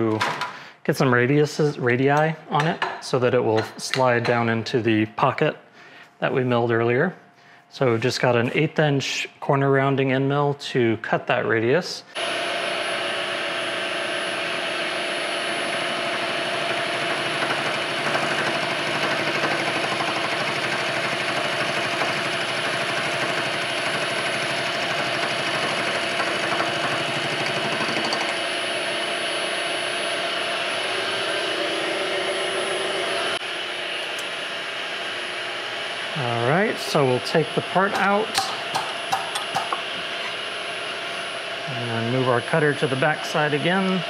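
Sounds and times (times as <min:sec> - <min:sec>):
milling machine whine: 0:12.1 - 0:44.0
metal cutting noise: 0:12.2 - 0:33.4, 0:36.2 - 0:44.0.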